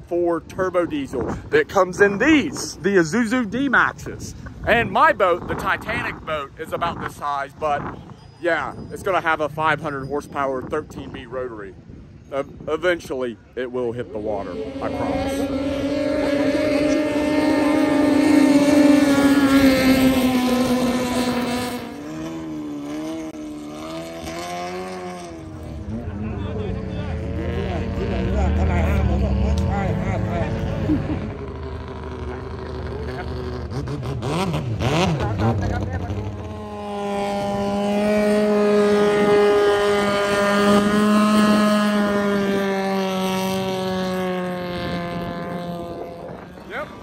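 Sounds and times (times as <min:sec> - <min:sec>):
quieter engine note: 0:14.0 - 0:33.6, 0:35.3 - 0:47.0
boat engine running hard: 0:14.2 - 0:47.0.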